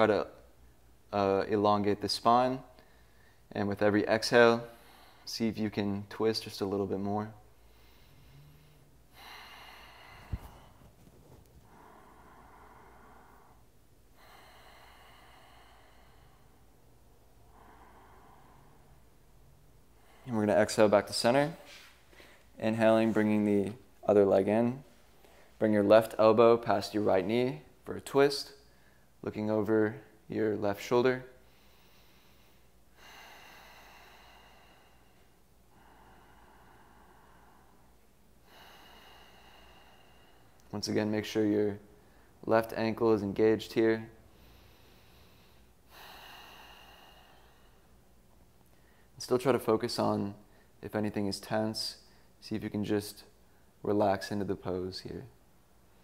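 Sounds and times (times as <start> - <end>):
person breathing slowly: 2.8 - 3.5, 4.6 - 5.3, 7.4 - 23.8, 31.4 - 40.7, 44.0 - 49.2.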